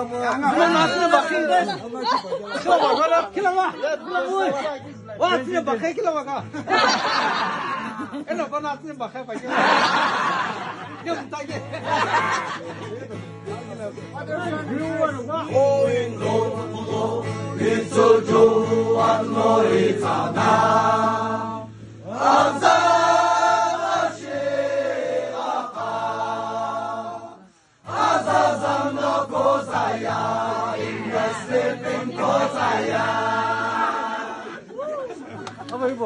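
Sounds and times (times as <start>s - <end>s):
men singing in chorus: 15.9s - 34.6s.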